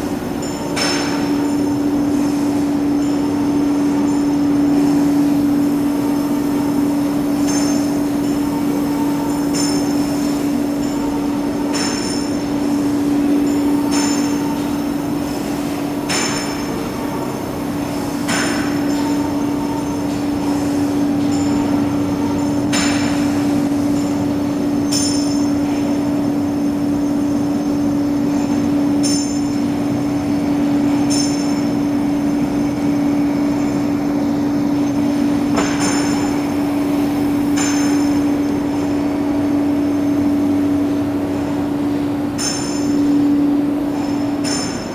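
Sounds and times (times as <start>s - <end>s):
industrial machinery hum: 0.0s - 44.9s
sharp metallic clank: 0.4s - 1.8s, 7.0s - 14.9s, 16.0s - 17.2s, 18.2s - 24.2s, 24.8s - 26.0s, 30.9s - 34.0s, 34.8s - 36.7s, 37.5s - 40.8s, 42.3s - 44.9s.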